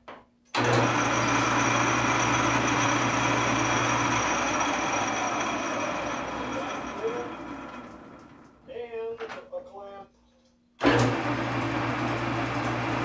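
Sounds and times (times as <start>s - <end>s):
lathe motor and gears running: 0.6s - 8.6s, 10.8s - 13.0s.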